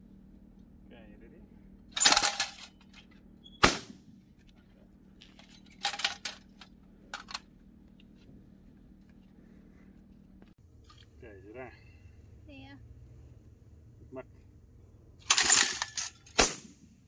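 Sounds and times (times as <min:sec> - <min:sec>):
shotgun shot: 0:03.6 - 0:04.1, 0:16.3 - 0:16.9.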